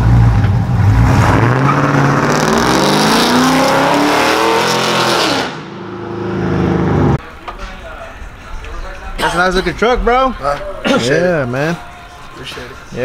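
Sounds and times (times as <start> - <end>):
pickup truck engine accelerating: 0.0 - 7.4.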